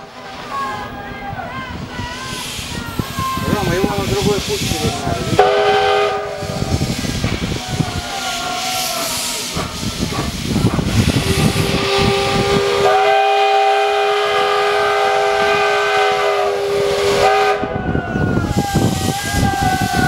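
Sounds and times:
steam locomotive hissing and puffing: 0.0 - 20.0
steam whistle chord: 5.4 - 6.6, 11.7 - 17.8.

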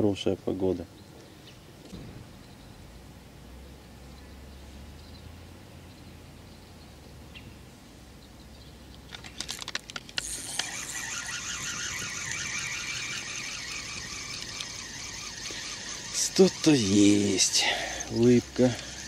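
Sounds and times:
fishing rod clicks: 8.9 - 19.0
spinning reel whirring: 9.4 - 19.0.

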